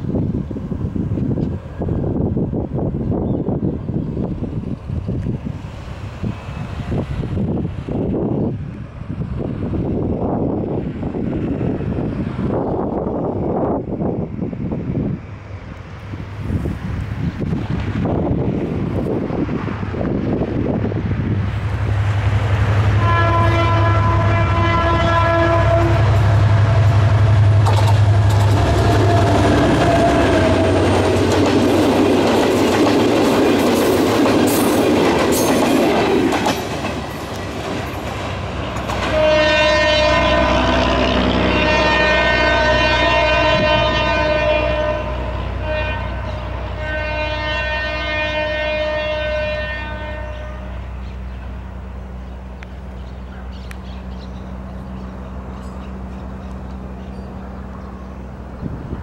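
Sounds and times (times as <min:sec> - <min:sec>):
train rumbling past: 0:00.0 - 0:59.0
locomotive air horn: 0:22.9 - 0:26.8, 0:28.4 - 0:31.0, 0:39.0 - 0:50.9
wheels clacking over rail joints: 0:26.1 - 0:39.4.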